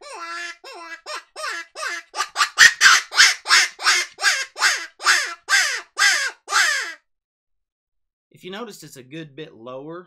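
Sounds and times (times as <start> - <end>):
predator call raspy cries: 0.0 - 7.0.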